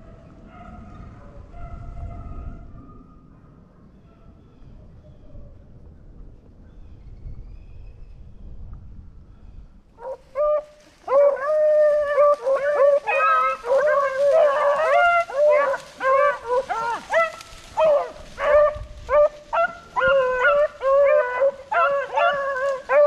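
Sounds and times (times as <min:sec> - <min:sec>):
hounds baying: 0:10.0 - 0:23.0.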